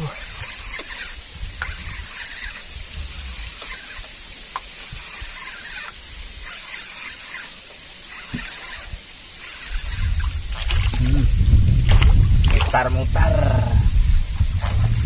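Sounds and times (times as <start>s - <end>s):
low rumble: 9.9s - 15.0s.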